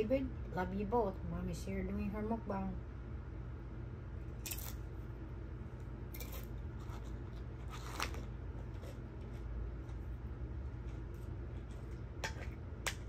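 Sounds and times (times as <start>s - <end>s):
steady low hum: 0.0s - 13.0s
crisp crunches of eating: 4.3s - 4.9s, 6.1s - 12.2s.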